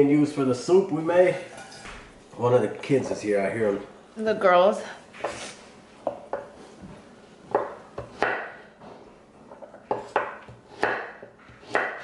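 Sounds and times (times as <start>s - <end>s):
knife cutting on wooden board: 9.6s - 12.0s.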